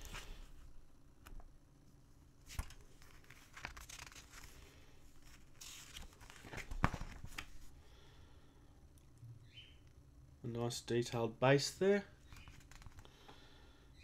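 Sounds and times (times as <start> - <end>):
paper booklet rustling: 2.4 - 7.7, 12.2 - 13.1.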